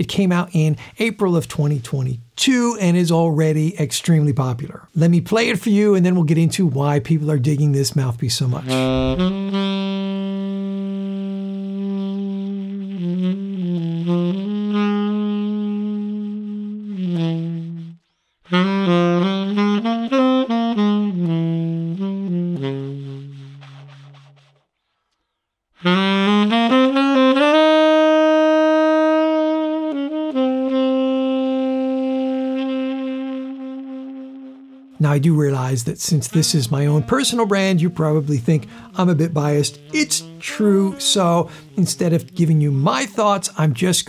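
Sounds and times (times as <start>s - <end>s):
tenor saxophone playing: 8.6s - 24.6s, 25.8s - 43.9s.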